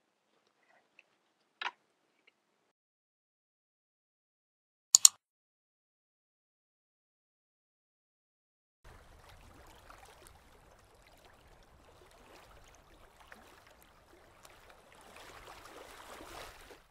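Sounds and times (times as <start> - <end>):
light water splashes: 8.9 - 16.9
small ripples lapping at water's edge: 8.9 - 16.9.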